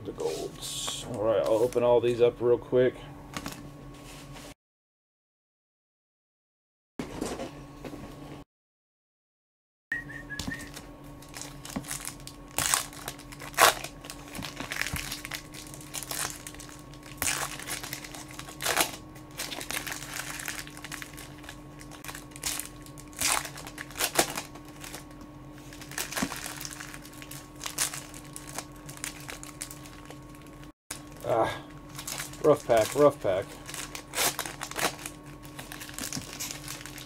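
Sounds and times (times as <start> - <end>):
foil wrappers tearing and crinkling: 10.6 - 37.0.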